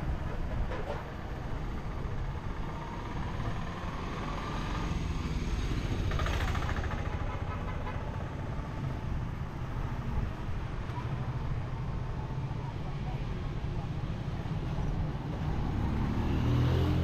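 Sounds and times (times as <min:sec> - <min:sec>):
street traffic rumble: 0:00.0 - 0:17.0
auto-rickshaw passing: 0:00.1 - 0:12.5.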